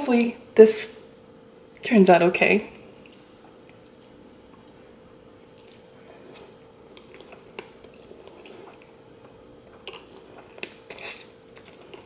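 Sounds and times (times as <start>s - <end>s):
faint steady hum: 0.0s - 12.0s
noodles slurped and chewed: 5.6s - 12.0s.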